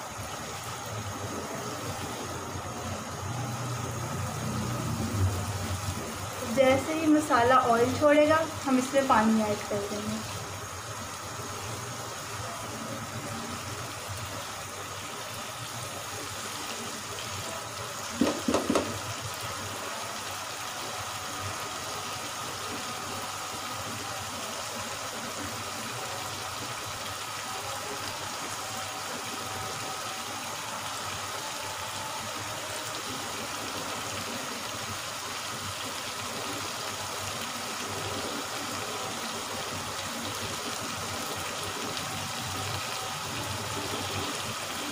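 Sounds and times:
sauce sizzling in oil: 0.0 - 44.9.

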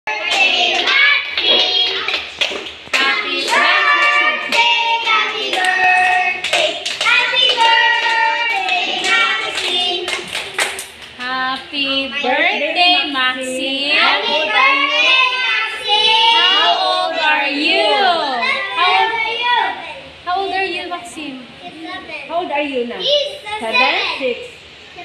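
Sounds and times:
children clapping: 0.2 - 11.2
children singing: 2.9 - 10.7.

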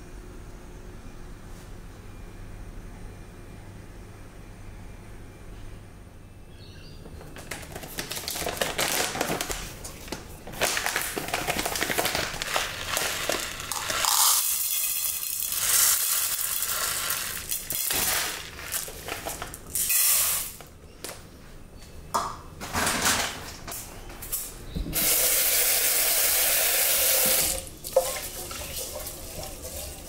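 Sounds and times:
plastic bag crinkling: 7.4 - 19.9
rice grains rattling into a pot: 10.6 - 20.6.

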